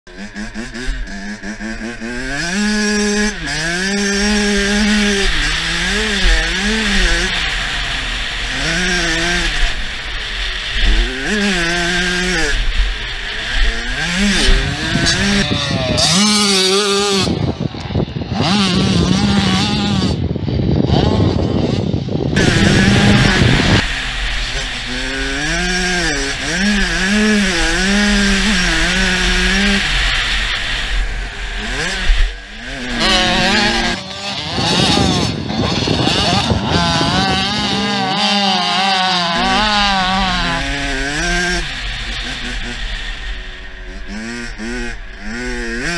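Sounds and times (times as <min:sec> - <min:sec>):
motorbike engine revving: 0:00.1 - 0:45.9
wind buffeting microphone: 0:13.6 - 0:30.0, 0:30.8 - 0:45.9.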